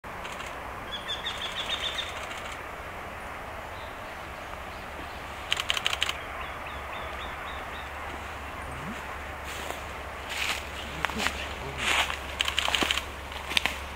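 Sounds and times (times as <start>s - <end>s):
bird singing repeated notes: 0.8s - 12.6s
faint answering bird notes: 6.1s - 10.0s.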